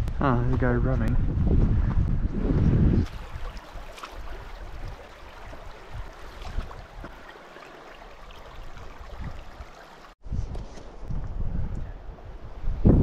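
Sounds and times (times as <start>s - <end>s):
wind rumble on microphone: 0.0s - 7.2s, 8.2s - 13.0s
creek water rushing: 3.1s - 10.2s.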